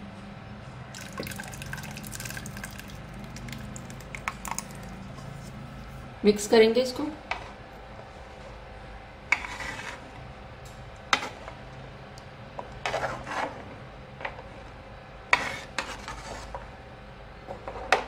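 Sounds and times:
spoon scraping metal pot: 9.3 - 10.0.

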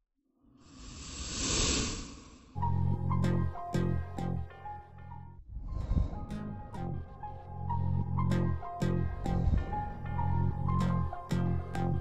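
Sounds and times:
plucked notes music: 2.6 - 5.4, 6.2 - 12.0.

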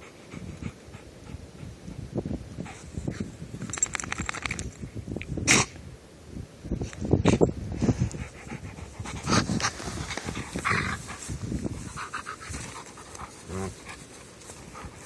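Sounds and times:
dog rolling in dry grass: 2.6 - 4.8, 8.8 - 15.0
dog panting: 8.0 - 15.0.

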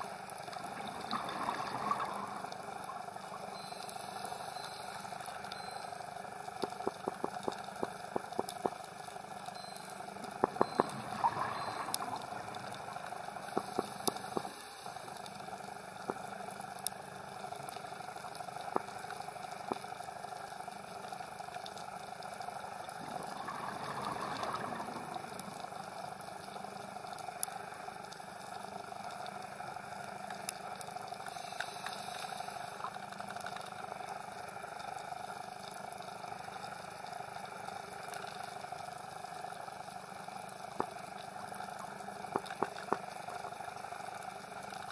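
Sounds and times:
bubbling noise: 0.7 - 2.6, 23.0 - 25.6
sharp underwater clicks: 6.5 - 8.9, 9.6 - 14.6, 42.3 - 43.1
watery hiss: 31.3 - 32.9.

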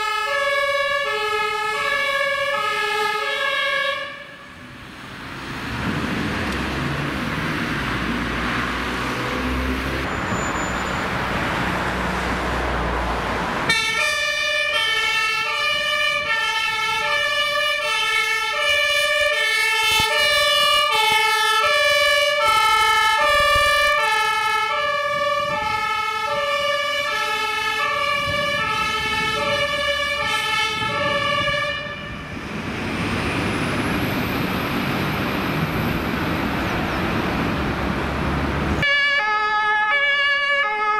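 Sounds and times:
two-tone emergency siren: 0.0 - 4.9, 13.6 - 36.0, 38.7 - 40.9
road traffic: 0.0 - 40.9
heavy vehicle engine rumble: 4.3 - 13.8, 22.0 - 38.9.

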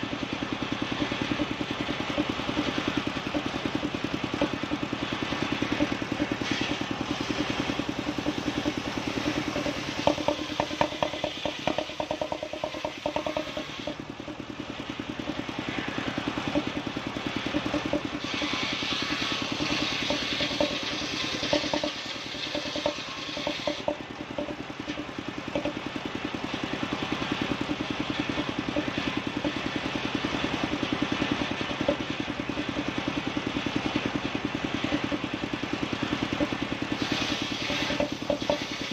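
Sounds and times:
circular saw engine running: 0.0 - 38.9
saw blade hissing through wood: 18.2 - 21.4, 36.9 - 38.9.

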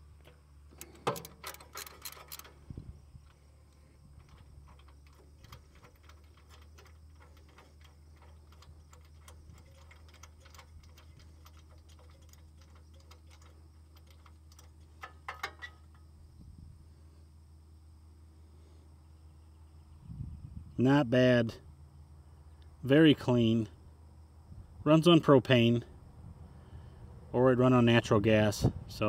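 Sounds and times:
socket wrench ratchet clicking: 0.7 - 2.6.

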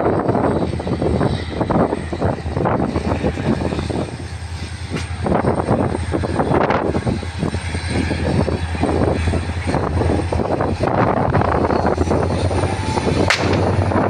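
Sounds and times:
diesel locomotive engine droning: 0.0 - 14.0.

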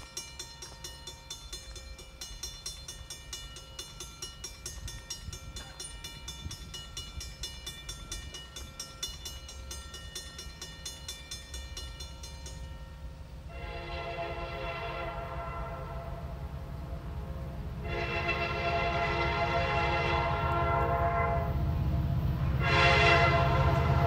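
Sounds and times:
distant train rumble: 0.0 - 24.0
locomotive horn chord: 13.4 - 21.8, 22.4 - 24.0.

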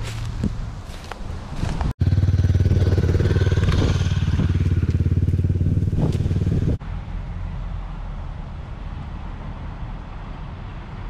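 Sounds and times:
road traffic: 0.0 - 11.0
motorcycle engine running: 2.0 - 6.8.

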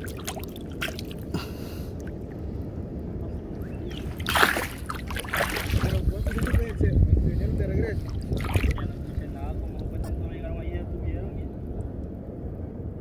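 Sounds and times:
hand splashing shallow water: 0.0 - 2.1, 3.9 - 6.7, 8.0 - 9.0
steady low rumble: 0.0 - 13.0.

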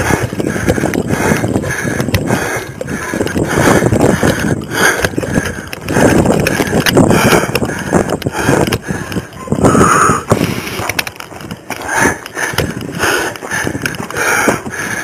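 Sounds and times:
clattering knocks of footsteps: 0.0 - 15.0.

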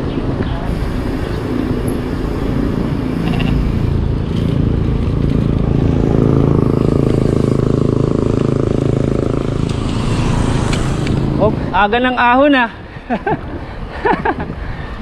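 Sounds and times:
vehicle engine running: 0.7 - 12.0.

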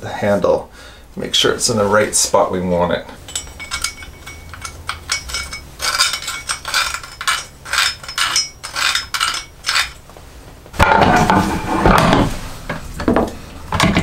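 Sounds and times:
faint metallic ringing: 3.1 - 10.0.

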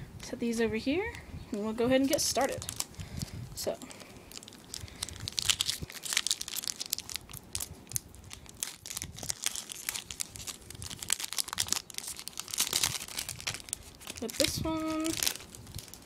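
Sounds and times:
foil wrapper tearing and crinkling: 2.0 - 16.0.

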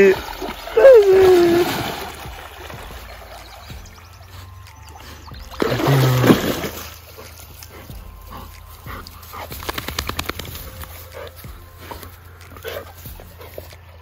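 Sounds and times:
dog shaking off water: 0.0 - 3.9, 5.6 - 7.3, 9.5 - 11.0
dog splashing in water: 0.0 - 14.0.

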